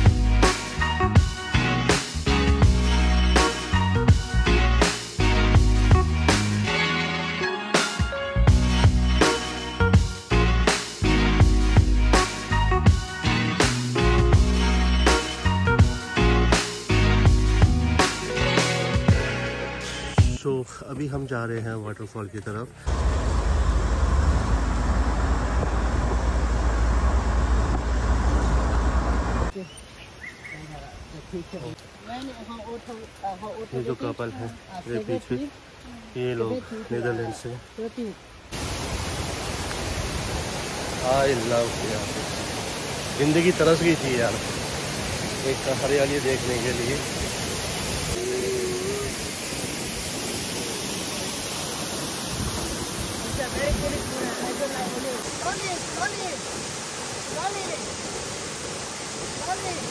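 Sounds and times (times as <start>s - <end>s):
waterfall pouring onto rocks: 19.8s - 23.0s, 31.3s - 59.9s
vehicle road and engine rumble: 22.5s - 29.5s.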